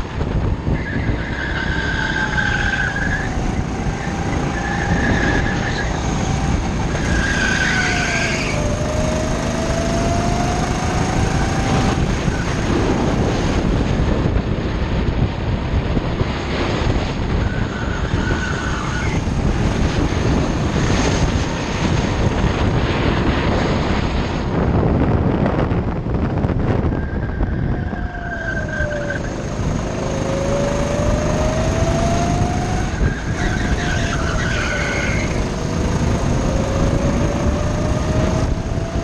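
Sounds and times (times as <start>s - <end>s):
go-kart engine running: 0.0s - 26.9s, 28.4s - 39.0s
tyre squeals: 6.9s - 8.8s, 32.9s - 35.5s.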